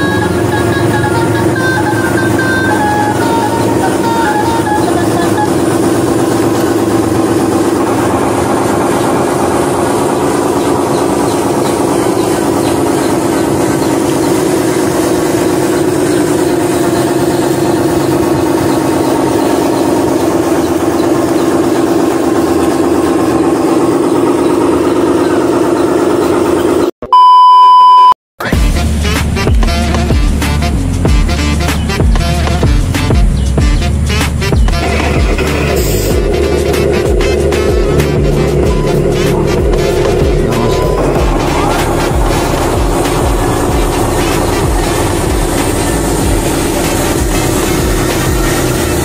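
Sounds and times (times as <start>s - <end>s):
simulated diesel engine: 0.0s - 49.0s
test-tone beep: 26.8s - 28.2s, 37.8s - 42.9s.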